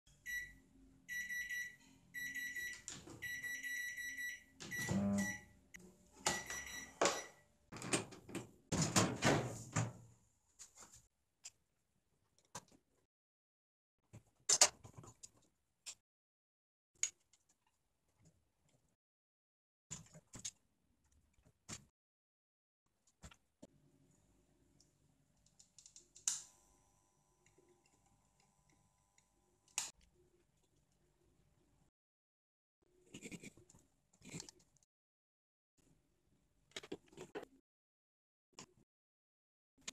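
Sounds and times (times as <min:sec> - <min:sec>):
microwave buzzer beeping: 0:00.2 - 0:07.5
knocks and rattles of oven: 0:07.8 - 0:10.0.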